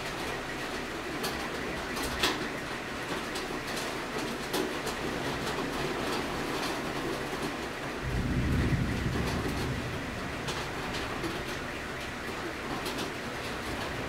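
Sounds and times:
heavy rain: 0:00.0 - 0:14.0
raindrops tapping window: 0:00.8 - 0:14.0
low rumble: 0:08.0 - 0:11.5.

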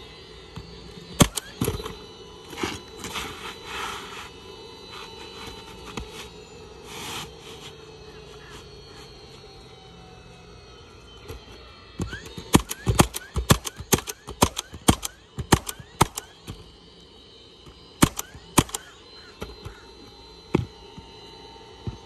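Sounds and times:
roofing nailer shots: 0:01.1 - 0:03.9, 0:12.0 - 0:16.7, 0:18.0 - 0:19.8.

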